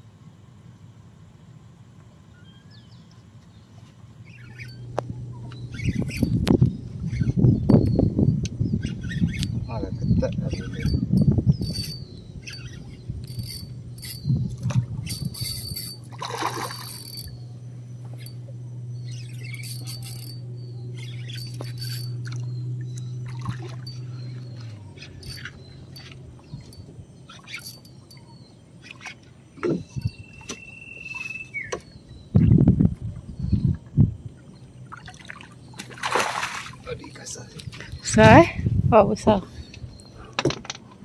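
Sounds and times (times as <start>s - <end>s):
low steady hum: 0.0s - 41.0s
fish splashing in water: 16.1s - 17.3s, 34.8s - 37.0s.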